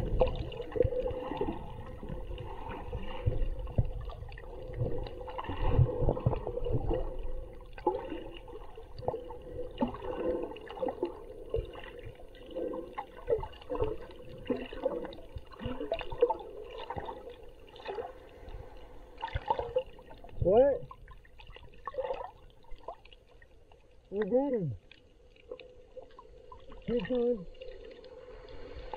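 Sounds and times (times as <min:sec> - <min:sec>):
underwater gurgling and bubbling: 0:00.0 - 0:23.2
pops and clicks underwater: 0:08.9 - 0:18.1.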